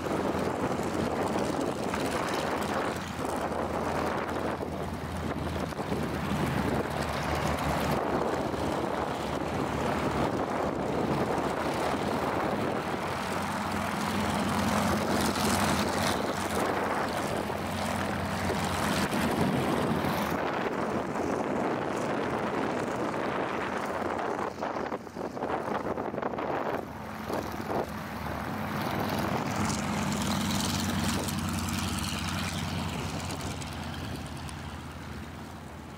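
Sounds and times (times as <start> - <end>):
propeller plane engines running: 0.0 - 35.9.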